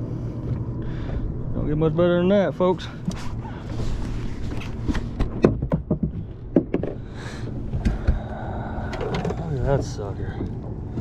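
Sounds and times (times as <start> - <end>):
knocks and taps on boat deck: 4.9 - 7.1, 7.8 - 8.3.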